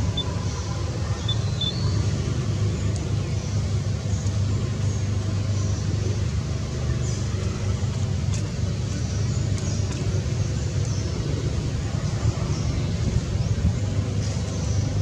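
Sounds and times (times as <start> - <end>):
low engine hum: 0.0 - 15.0
faint high chirps: 1.1 - 2.1.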